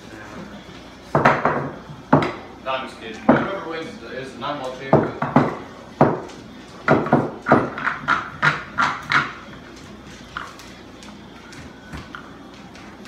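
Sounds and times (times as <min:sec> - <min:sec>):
pool balls clacking: 0:01.0 - 0:10.5.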